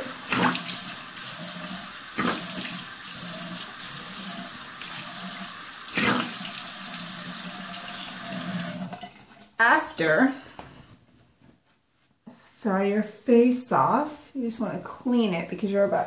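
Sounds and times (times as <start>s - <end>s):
water splashing on face: 0.0s - 1.0s, 2.1s - 3.0s, 5.8s - 6.6s
sink tap running: 0.0s - 9.4s.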